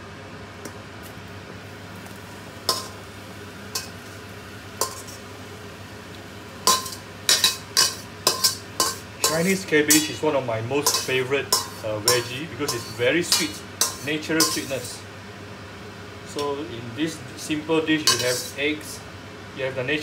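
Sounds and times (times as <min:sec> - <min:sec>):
steady low hum: 0:00.0 - 0:20.0
spatula scraping a steel wok: 0:04.8 - 0:05.2, 0:06.7 - 0:10.1, 0:10.8 - 0:15.0, 0:18.0 - 0:18.6.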